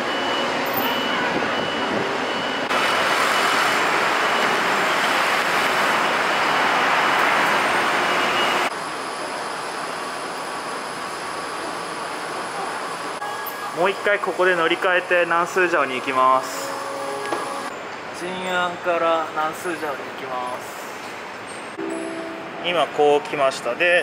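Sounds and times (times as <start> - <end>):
city road traffic: 0.0 - 24.0
thin high tone: 21.7 - 23.1.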